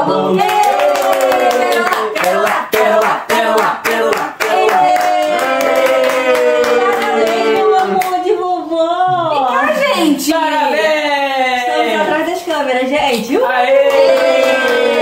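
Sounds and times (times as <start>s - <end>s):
voices singing a worship song: 0.0s - 5.8s
hands clapping in rhythm: 0.3s - 8.2s, 13.8s - 15.0s.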